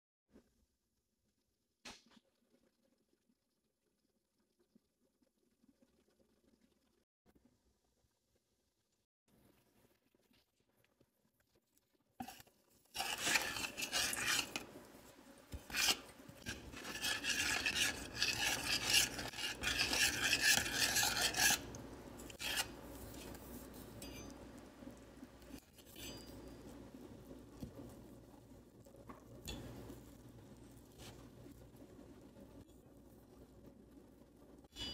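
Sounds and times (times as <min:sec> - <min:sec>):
metal spoon scraping saucepan: 0:13.0 - 0:14.8, 0:15.5 - 0:24.4, 0:25.6 - 0:26.7.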